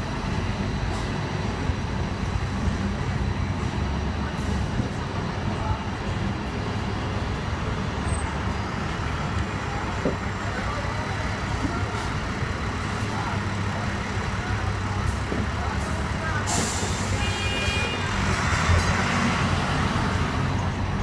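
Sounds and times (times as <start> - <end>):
tram wheels and motor rumbling: 0.0 - 17.2, 18.0 - 21.0
road traffic: 0.0 - 21.0.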